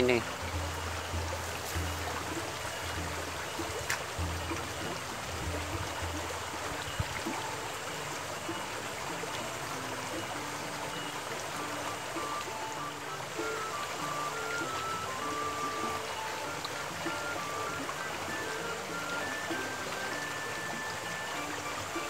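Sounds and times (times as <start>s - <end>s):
faint background music: 0.0s - 22.0s
stream rushing over rocks: 0.0s - 22.0s.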